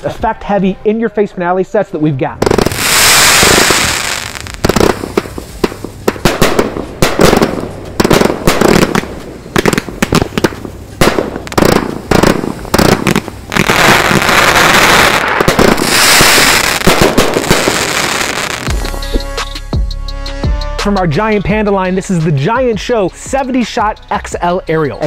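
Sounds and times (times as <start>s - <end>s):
fireworks crackle: 2.4s - 19.3s
fireworks shots and bursts: 2.4s - 19.5s.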